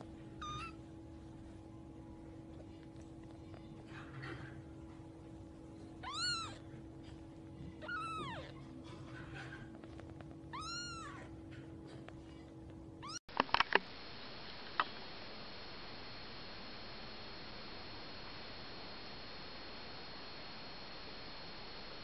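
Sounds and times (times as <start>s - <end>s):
kitten mewing: 0.4s - 0.8s, 6.0s - 6.7s, 7.7s - 8.7s, 10.5s - 11.3s.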